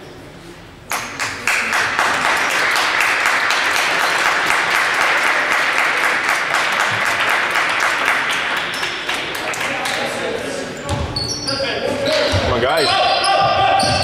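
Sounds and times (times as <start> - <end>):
people clapping: 0.9 - 10.4.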